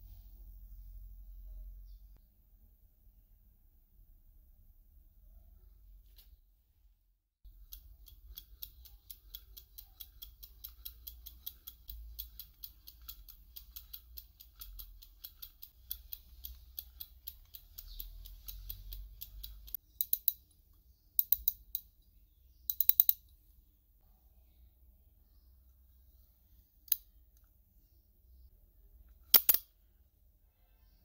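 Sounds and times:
fishing reel clicking: 0:07.5 - 0:20.4
quick loud reel clicks: 0:29.3 - 0:29.7.

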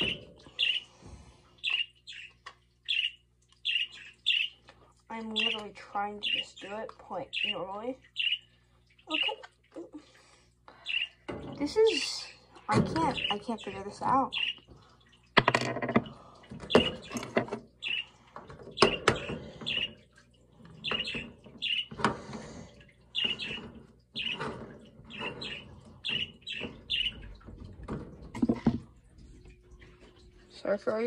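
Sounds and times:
ducklings splashing in water: 0:00.0 - 0:15.4
ducklings peeping: 0:20.8 - 0:21.9, 0:25.1 - 0:27.2.

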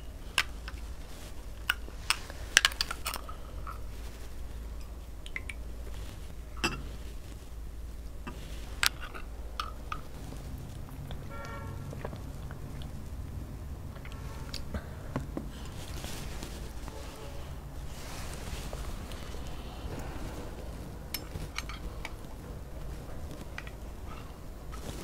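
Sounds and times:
spoon clinking against glass: 0:06.6 - 0:06.8.

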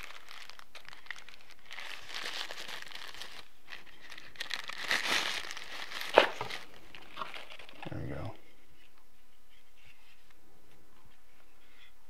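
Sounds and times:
paper crinkling and rustling: 0:00.0 - 0:08.2.

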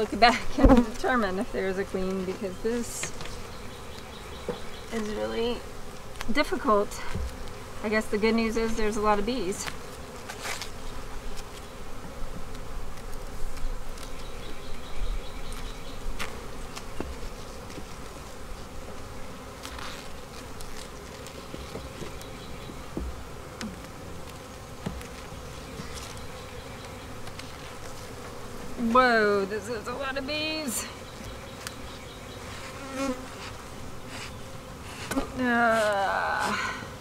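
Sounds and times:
bees humming: 0:00.0 - 0:37.0
hive tool knocking on wooden frames: 0:00.5 - 0:01.1, 0:02.1 - 0:05.4, 0:21.0 - 0:25.5.

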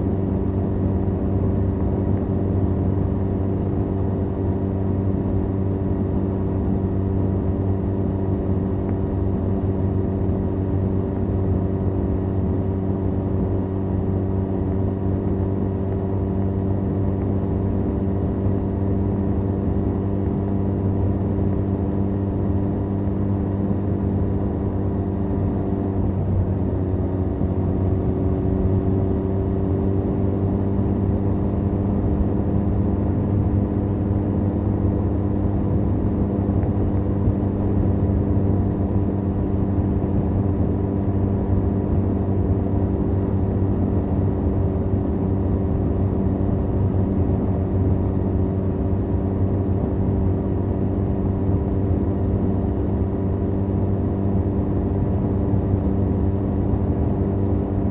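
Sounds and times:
motorcycle engine cruising: 0:00.0 - 0:57.9.

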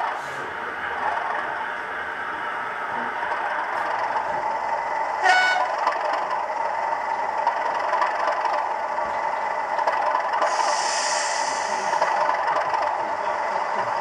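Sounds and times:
model train running: 0:00.0 - 0:14.0
model locomotive horn toot: 0:05.2 - 0:05.8.

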